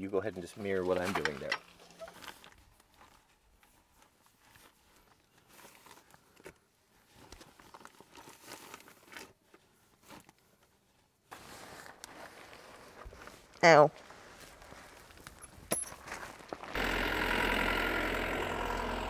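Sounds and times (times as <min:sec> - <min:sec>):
plastic tarp rustling: 0:07.0 - 0:10.6, 0:11.3 - 0:16.8.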